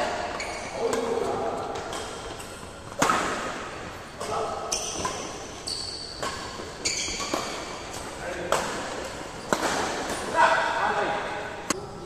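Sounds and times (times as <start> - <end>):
shoes squeaking on court: 0.0 - 10.4
rackets hitting shuttlecock: 0.4 - 10.7.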